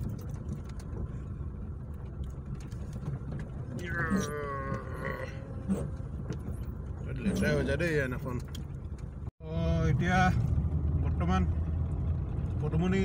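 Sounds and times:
rain ticking: 0.0 - 3.8
car engine and road rumble: 0.0 - 13.0.

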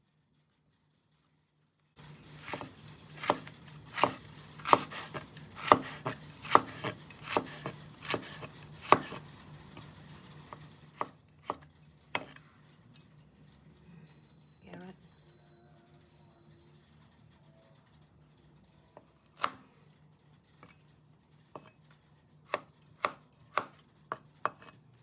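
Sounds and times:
cleaver chopping on wooden board: 2.4 - 9.2.

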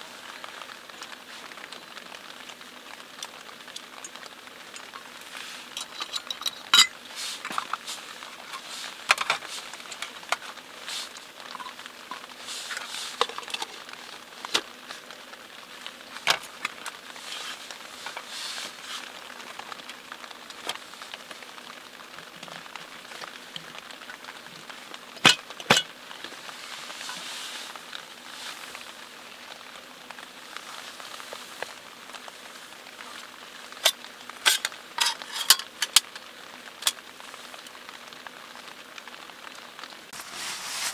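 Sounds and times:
rain pattering: 0.0 - 40.9
camp gear clicks and knocks: 3.8 - 14.7, 25.2 - 25.9, 33.8 - 36.2.

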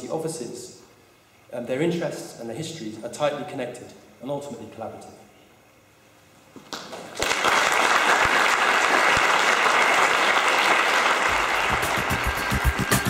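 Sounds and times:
audience applauding: 6.7 - 13.0
rhythmic music: 11.3 - 13.0.

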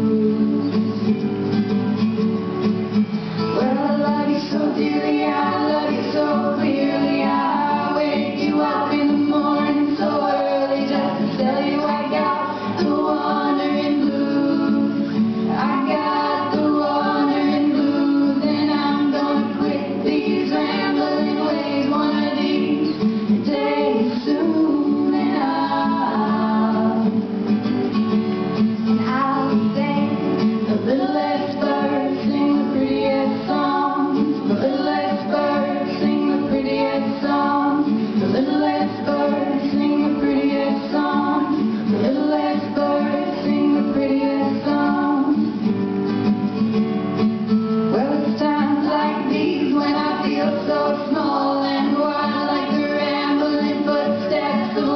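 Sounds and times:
girls singing together: 0.0 - 1.0, 3.4 - 27.6, 28.9 - 45.8, 47.9 - 54.9
acoustic guitar: 0.0 - 54.9.

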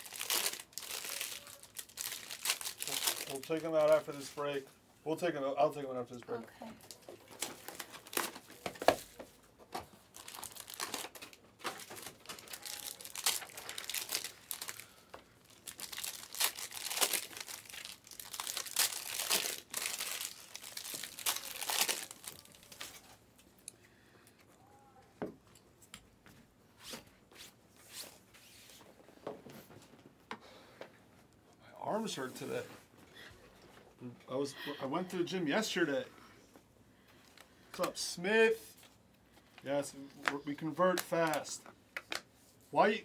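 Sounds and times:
plastic wrappers tearing and crinkling: 0.0 - 4.4, 6.8 - 9.0, 10.0 - 23.2.

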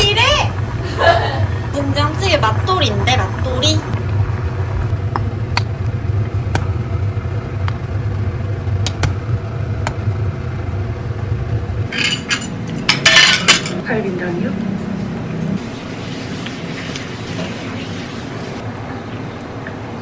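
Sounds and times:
stew boiling on gas burner: 0.0 - 11.9
sharp pops and clicks: 5.1 - 6.8, 7.6 - 8.2, 8.8 - 10.0.

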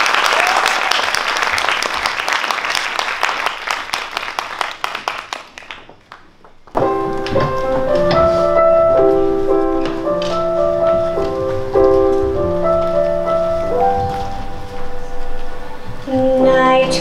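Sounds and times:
audience applause: 0.0 - 6.5.

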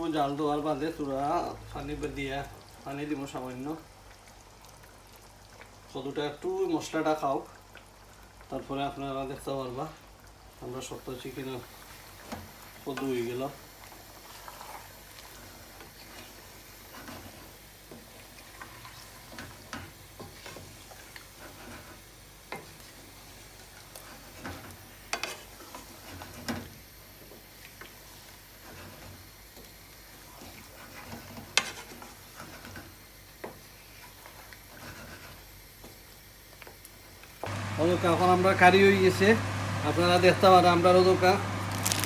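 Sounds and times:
faint sizzle: 0.0 - 42.0
wooden spoon stirring curry: 11.1 - 36.8.

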